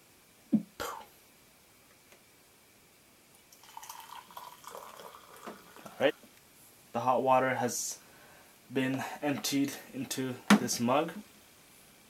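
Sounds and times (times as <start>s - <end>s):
hot water poured into a mug: 3.5s - 6.0s.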